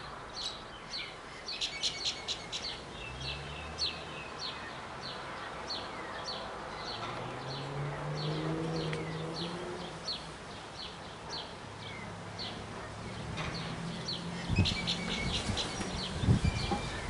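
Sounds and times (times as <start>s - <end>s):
bird chirping: 0.0s - 17.0s
wind on microphone: 14.4s - 17.0s.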